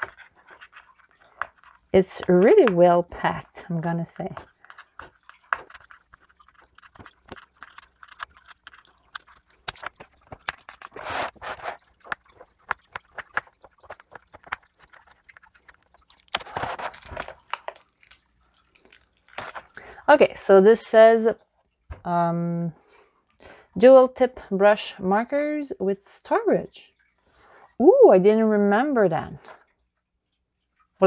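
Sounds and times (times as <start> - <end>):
crinkly rustle: 0.0 - 2.6, 3.5 - 20.2.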